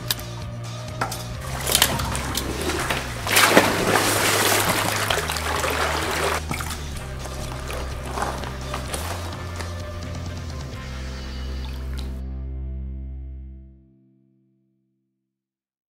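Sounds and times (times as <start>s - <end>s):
background music: 0.0s - 14.2s
water splashing and sloshing: 1.4s - 12.2s.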